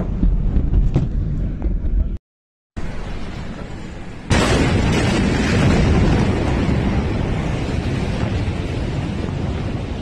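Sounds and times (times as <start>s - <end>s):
explosion boom: 4.3s - 9.9s
explosion roar: 4.3s - 10.0s.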